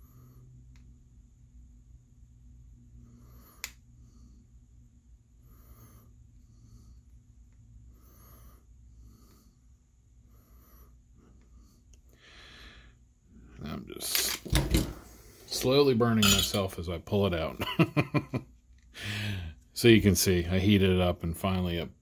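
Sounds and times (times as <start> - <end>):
soft breaths: 0.0 - 0.8, 2.8 - 13.7, 18.9 - 19.7
faint electrical hum: 0.0 - 22.0.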